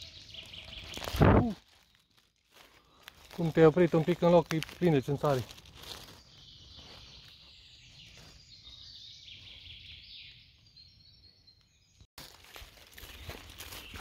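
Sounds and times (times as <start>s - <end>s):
footsteps crunching dry leaves: 0.0s - 8.7s, 12.2s - 14.0s
faint birdsong: 0.0s - 14.0s.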